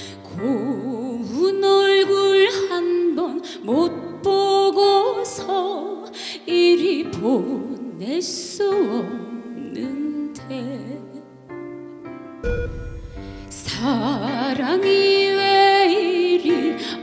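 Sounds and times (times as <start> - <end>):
woman singing into a microphone: 0.0 - 11.4, 13.5 - 17.0
backing music: 12.4 - 14.1.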